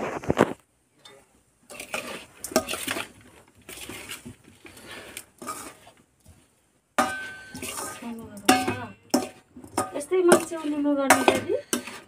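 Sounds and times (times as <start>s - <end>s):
metal spoon scraping metal bowl: 1.1s - 4.3s, 5.4s - 6.0s, 7.0s - 12.0s.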